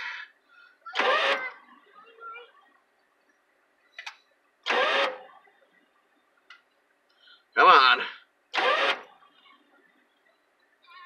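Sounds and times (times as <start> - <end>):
engine starter cranking: 0.9 - 1.6, 4.0 - 5.3, 8.5 - 9.2.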